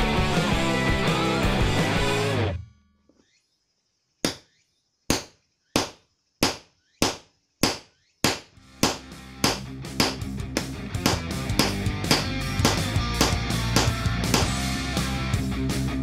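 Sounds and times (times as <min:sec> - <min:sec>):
hammer tapping hole punch: 0:05.8 - 0:14.5.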